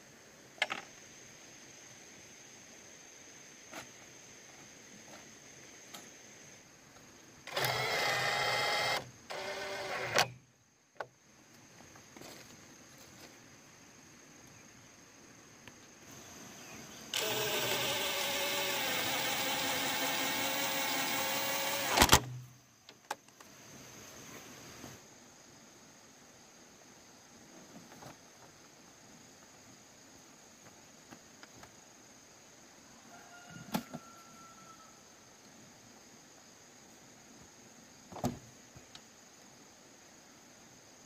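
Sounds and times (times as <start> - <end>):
small electric motor running: 7.5 - 10.3, 17.1 - 22.2.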